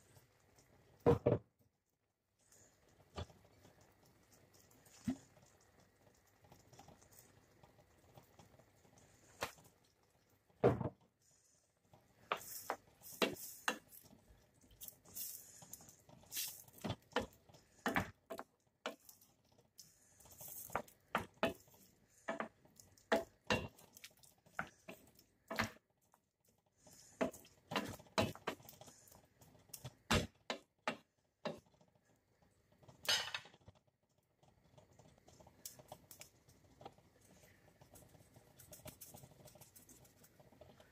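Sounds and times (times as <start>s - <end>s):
utensil knocking and scraping pan: 12.3s - 13.9s.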